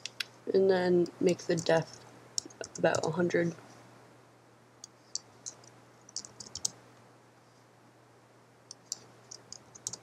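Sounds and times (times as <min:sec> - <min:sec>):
keyboard and mouse clicking: 0:00.0 - 0:00.3, 0:02.4 - 0:03.1, 0:04.8 - 0:06.8, 0:08.7 - 0:10.0
faint electrical hum: 0:00.0 - 0:10.0.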